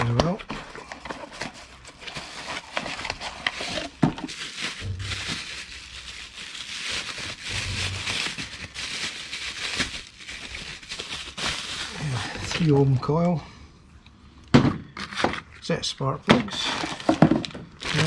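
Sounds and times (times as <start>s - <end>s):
packaging crinkling and rustling: 0.0s - 13.1s, 16.4s - 18.0s.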